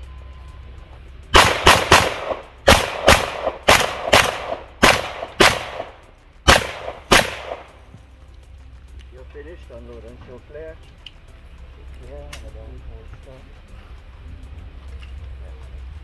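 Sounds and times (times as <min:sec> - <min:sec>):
rapid handgun fire with echo: 0:01.3 - 0:07.8.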